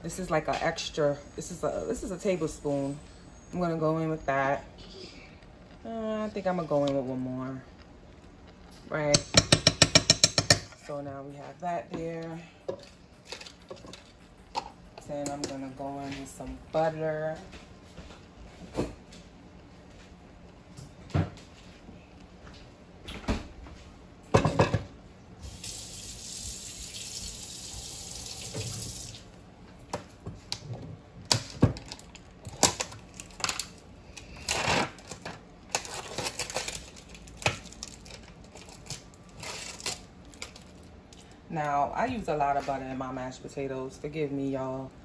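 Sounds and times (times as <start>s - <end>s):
kitchen knocks and clatters: 9.2s - 10.8s, 24.3s - 25.0s.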